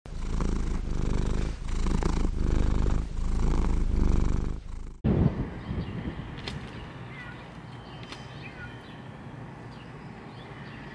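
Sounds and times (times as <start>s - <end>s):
cat purring: 0.1s - 5.0s.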